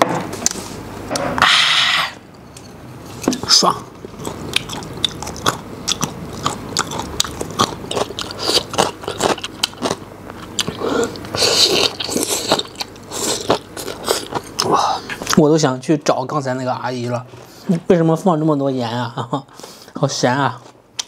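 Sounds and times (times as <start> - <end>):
person chewing food: 2.1 - 15.4.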